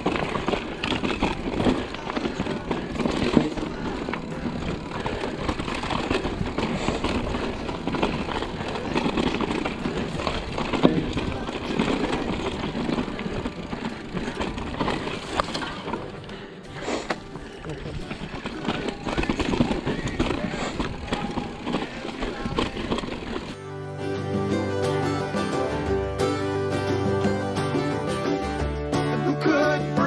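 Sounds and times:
bike tyres crunching over stones: 0.0s - 23.7s
bike rattling: 0.0s - 28.8s.

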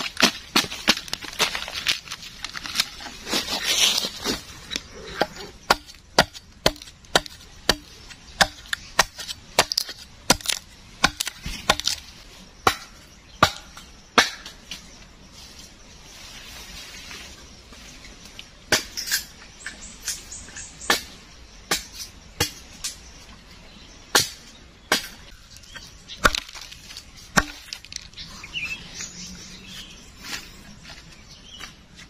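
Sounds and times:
blade chopping into wood: 5.2s - 12.0s, 27.3s - 27.8s.

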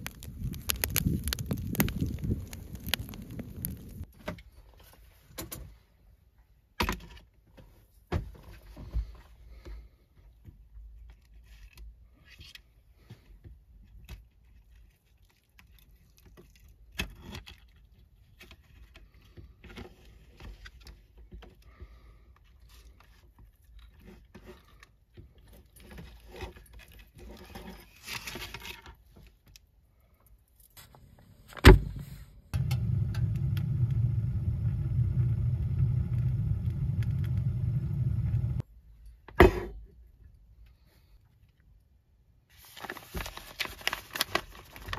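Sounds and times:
loud steady hum: 30.9s - 38.6s.

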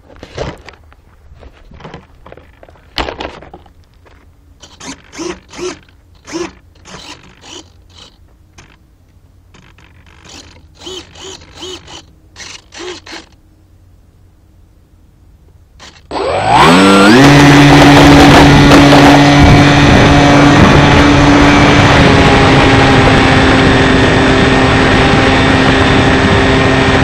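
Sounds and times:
small servos whirring: 4.6s - 8.8s, 9.5s - 13.4s, 15.8s - 20.2s.

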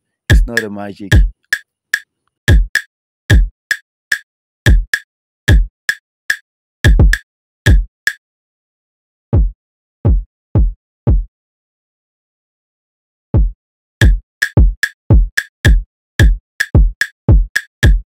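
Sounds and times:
kick drum thumps: 0.3s - 1.3s, 2.5s - 2.7s, 3.3s - 3.5s, 4.7s - 4.9s, 5.5s - 5.7s, 6.9s - 7.9s, 9.3s - 11.3s, 13.4s - 18.0s.

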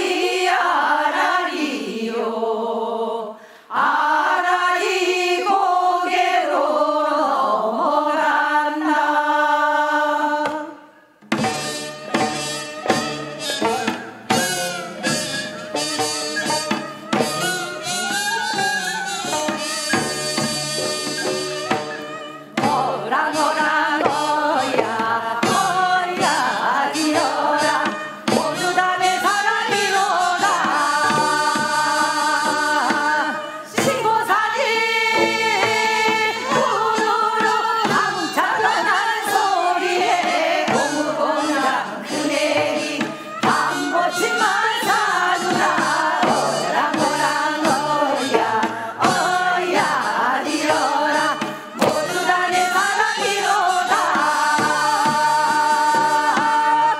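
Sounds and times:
women singing folk song: 0.0s - 56.9s
traditional instrumental accompaniment: 8.0s - 56.9s
steady drum strokes: 10.4s - 56.9s.

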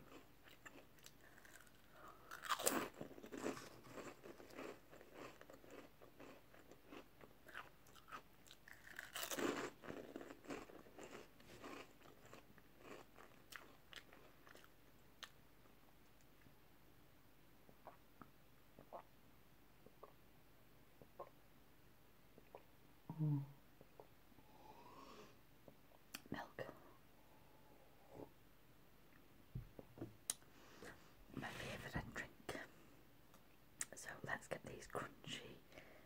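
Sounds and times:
chewing: 0.1s - 15.4s
crisps crunching: 0.5s - 14.7s.

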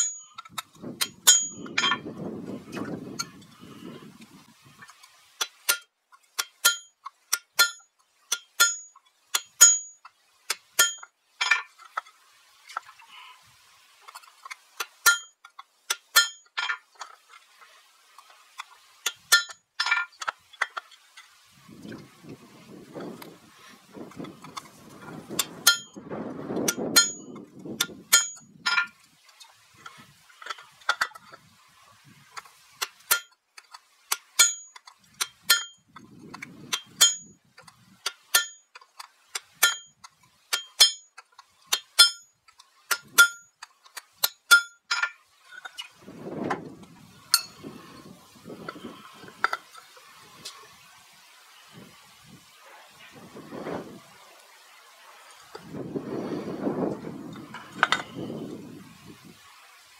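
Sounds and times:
hammer striking steel on anvil: 0.0s - 0.4s, 1.0s - 2.0s, 5.7s - 10.0s, 10.8s - 11.7s, 15.0s - 16.8s, 25.6s - 26.0s, 26.7s - 28.9s, 34.4s - 34.8s, 35.5s - 35.8s, 36.7s - 37.3s, 38.3s - 38.6s, 39.6s - 41.1s, 41.7s - 42.3s, 42.9s - 43.5s, 44.2s - 45.1s.

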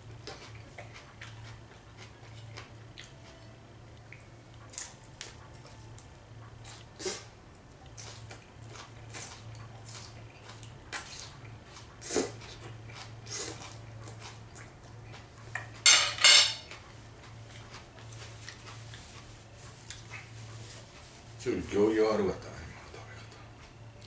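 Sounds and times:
cutlery clinking on a plate: 15.8s - 16.7s.

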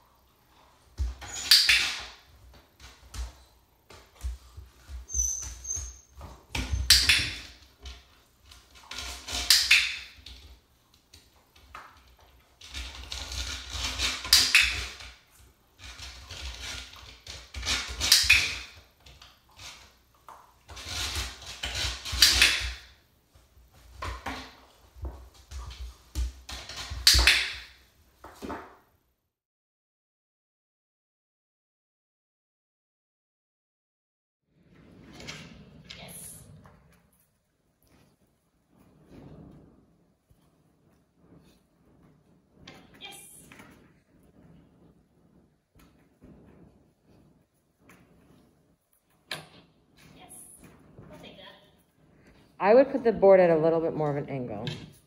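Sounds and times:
puppy claws scratching board: 11.6s - 20.0s, 20.6s - 23.0s.

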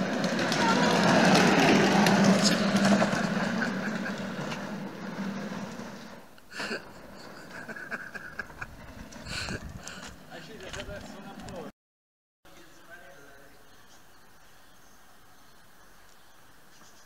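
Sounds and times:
plastic wheels rolling on asphalt: 0.0s - 11.7s.

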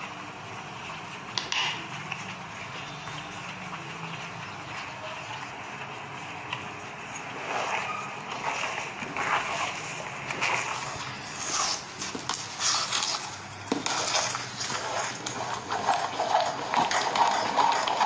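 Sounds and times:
thick food simmering: 0.0s - 18.0s
metal ladle stirring and scraping: 7.1s - 18.0s.

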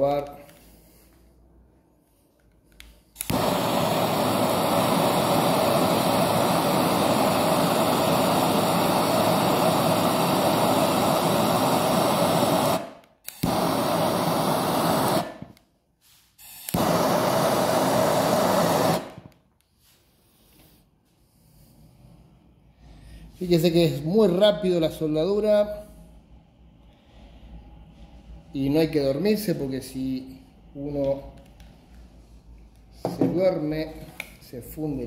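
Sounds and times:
torch flame hissing: 3.1s - 19.3s.

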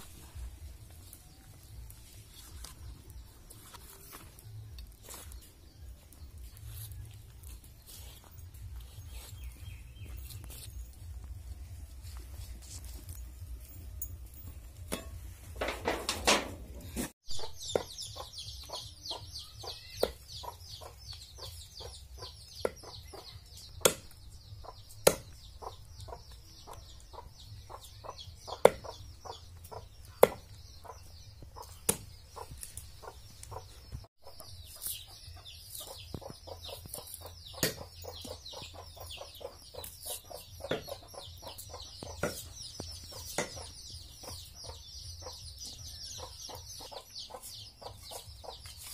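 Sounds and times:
chickens chirping: 15.3s - 48.9s
knife chopping on wood: 23.8s - 24.2s, 25.0s - 25.4s, 28.6s - 28.9s, 30.2s - 30.6s, 37.0s - 38.0s, 42.1s - 42.5s, 43.3s - 43.7s.

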